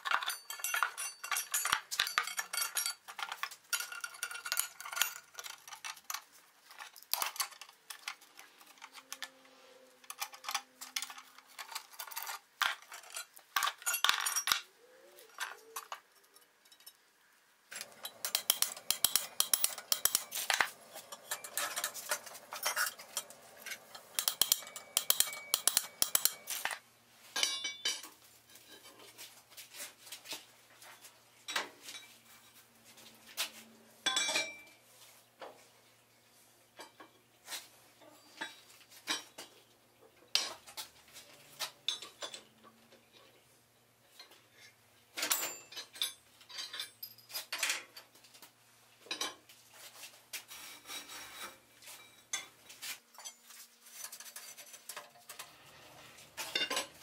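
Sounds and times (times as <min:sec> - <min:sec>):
steel bar clanking on anvil: 0:17.8 - 0:26.8, 0:27.4 - 0:28.0.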